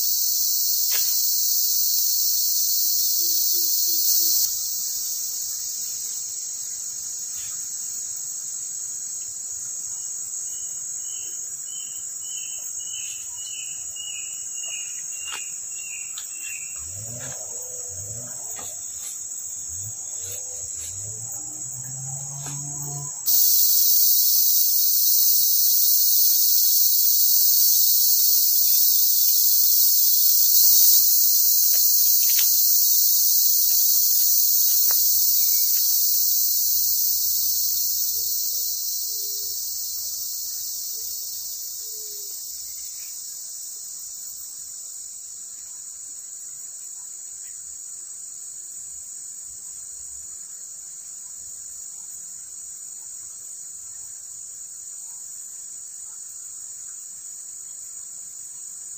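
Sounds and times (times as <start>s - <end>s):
forest insects shrilling: 0.0s - 9.1s, 10.2s - 43.5s.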